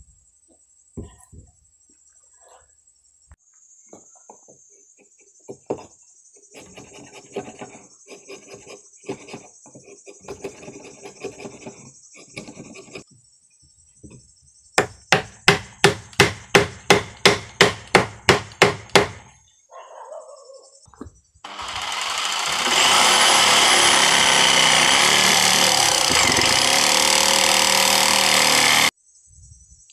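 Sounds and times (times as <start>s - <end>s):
chisel scraping wood: 6.5s - 13.1s
sharp knocks on wood: 14.8s - 19.3s.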